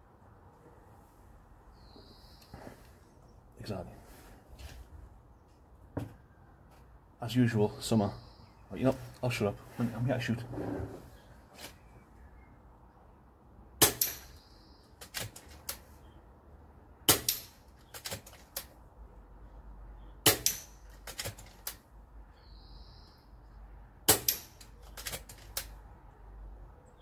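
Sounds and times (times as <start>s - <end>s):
pellet hitting metal targets: 13.8s - 14.3s, 17.1s - 17.6s, 20.2s - 20.8s, 24.1s - 24.6s.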